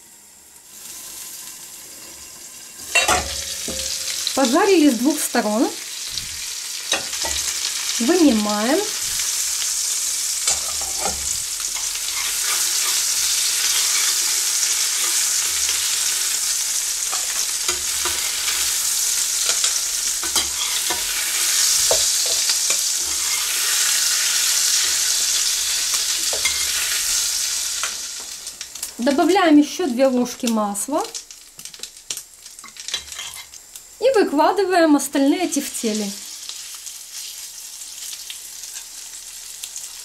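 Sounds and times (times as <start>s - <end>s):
meatballs sizzling in oil: 0.0s - 40.0s
spatula scraping frying pan: 9.0s - 27.3s.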